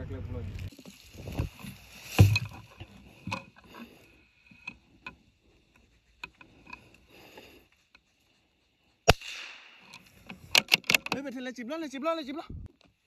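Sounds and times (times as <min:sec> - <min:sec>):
rifle handling knocks and clicks: 0:09.8 - 0:11.3.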